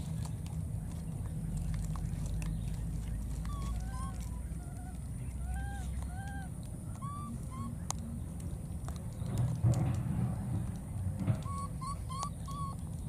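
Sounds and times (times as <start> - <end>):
low background rumble: 0.0 - 13.0
baby monkey crying: 3.5 - 7.8, 11.4 - 12.8.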